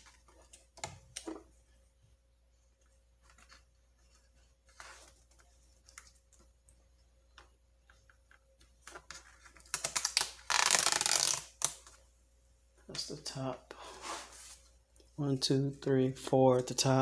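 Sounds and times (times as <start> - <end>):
rubber strip tearing off: 9.7 - 11.8.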